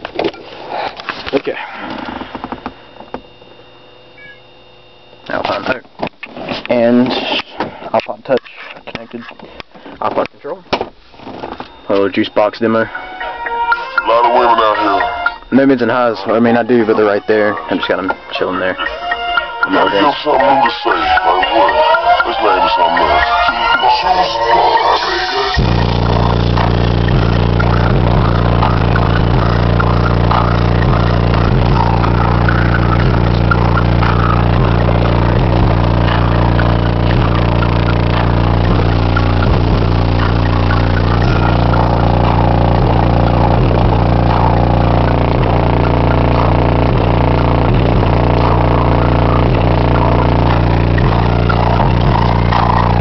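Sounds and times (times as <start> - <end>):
bass-heavy music through car stereo: 11.0 - 53.0.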